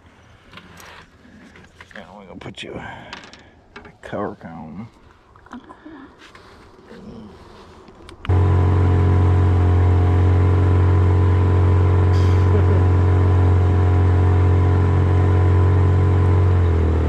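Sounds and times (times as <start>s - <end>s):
outboard motor running: 8.3s - 17.0s.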